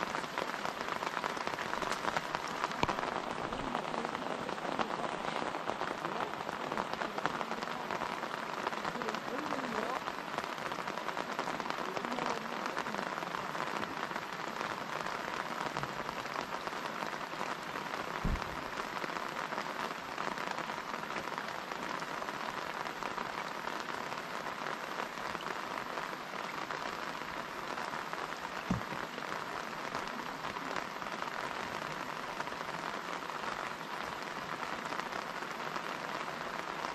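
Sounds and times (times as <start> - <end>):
rain falling on pond water: 0.0 - 36.9
low thumps: 18.2 - 18.7.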